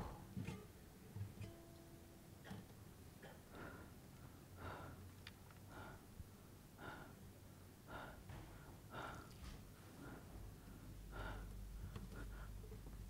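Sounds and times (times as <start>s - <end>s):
man breathing heavily: 3.3s - 13.0s.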